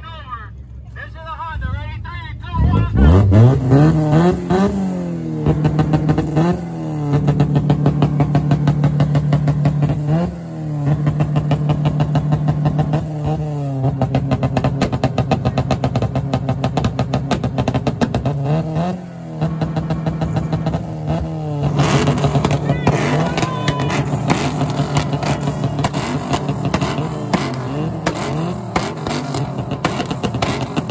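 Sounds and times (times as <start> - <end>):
exhaust stuttering rapidly: 1.0 - 30.9
car engine on rev limiter: 2.6 - 30.9.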